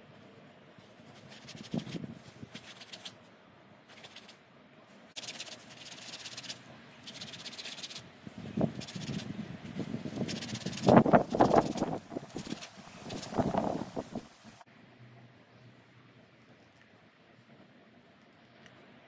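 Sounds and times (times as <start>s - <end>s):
cloth rubbing on antler: 0.8s - 3.2s, 5.2s - 8.0s, 10.1s - 14.2s.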